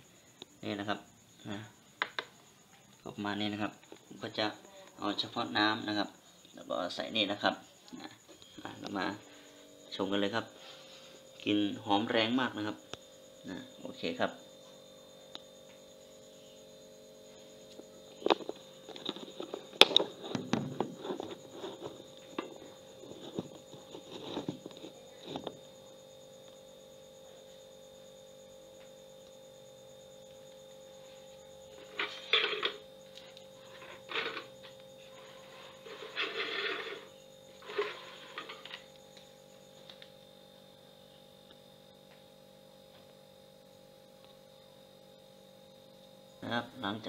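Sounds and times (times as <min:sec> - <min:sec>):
steady electrical hum: 0:00.0 - 0:47.0
plastic buckets knocking and clattering: 0:18.2 - 0:22.0.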